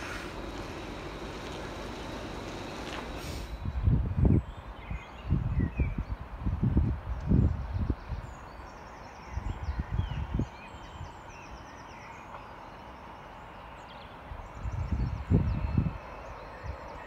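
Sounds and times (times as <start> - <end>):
wind buffeting microphone: 0.0 - 8.6, 9.2 - 11.6, 14.3 - 17.0
small birds chirping: 7.1 - 17.0.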